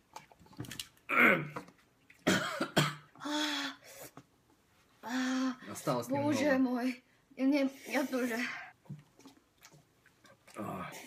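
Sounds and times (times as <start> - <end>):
person clearing throat: 1.1 - 1.6, 2.2 - 3.1
person coughing: 2.2 - 3.1.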